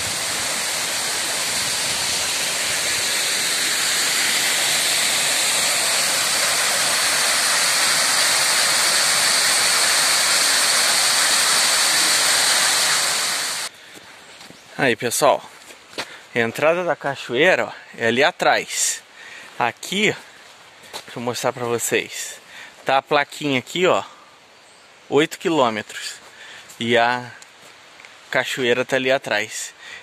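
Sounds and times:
stream running over rocks: 0.0 - 13.7
waterfall rushing: 0.0 - 13.7.

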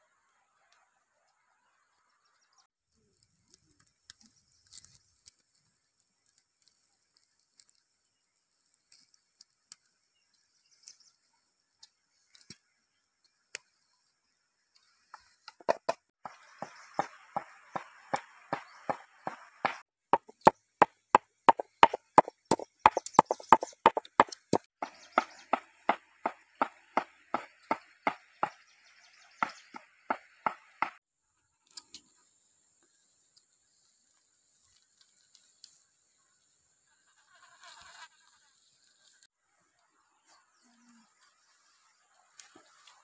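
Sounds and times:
pestle pounding in stone mortar: 15.6 - 16.0, 18.6 - 20.6, 21.5 - 28.6.

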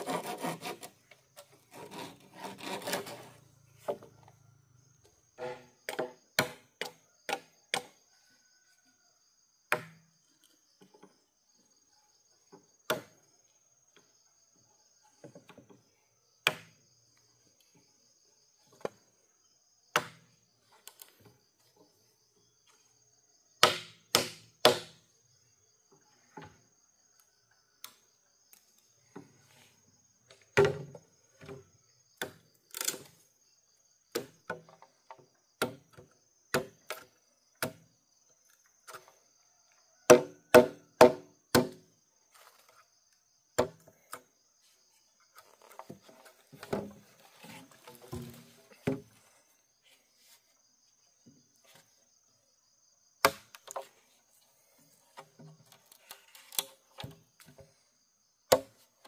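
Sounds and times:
hand tool striking bamboo: 5.4 - 7.9, 23.6 - 25.0, 40.1 - 41.8, 53.2 - 53.9, 58.5 - 58.8.

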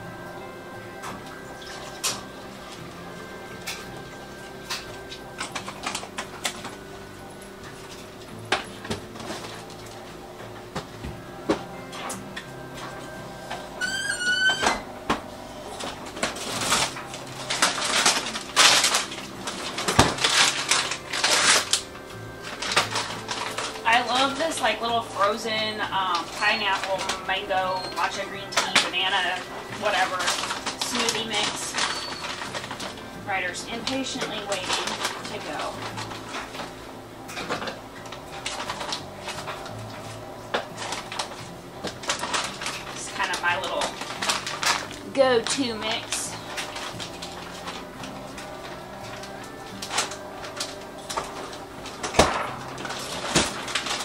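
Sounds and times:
low steady hum: 0.0 - 54.0
plastic packaging crinkling: 1.3 - 10.4, 15.6 - 54.0
plastic pouch rustling: 15.8 - 25.4, 28.0 - 33.1, 33.7 - 36.8, 38.0 - 54.0.

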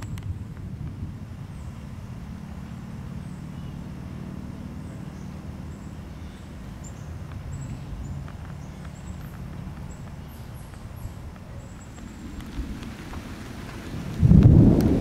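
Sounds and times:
low steady rumble: 0.0 - 15.0
faint ticks: 6.8 - 14.9.

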